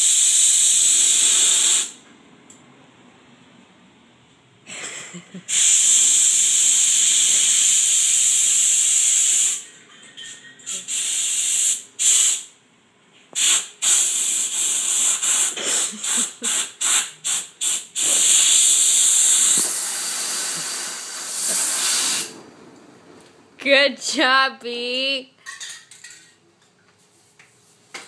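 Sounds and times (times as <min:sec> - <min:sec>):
compressed air hissing: 0:00.0 - 0:02.0, 0:05.5 - 0:09.6, 0:10.7 - 0:12.5, 0:13.4 - 0:22.4.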